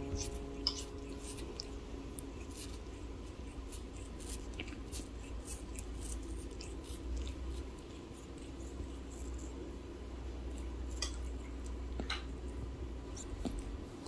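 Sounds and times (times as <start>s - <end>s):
kitten licking and nibbling: 0.0s - 14.0s.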